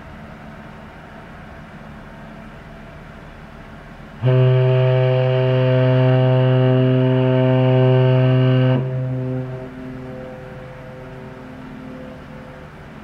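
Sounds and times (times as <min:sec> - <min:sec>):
ship horn long low blast: 0:03.4 - 0:13.0.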